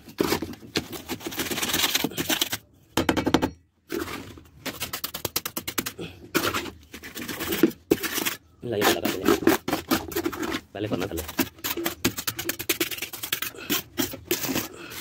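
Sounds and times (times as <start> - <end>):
hands working wet mortar: 0.0 - 2.7, 3.9 - 15.0.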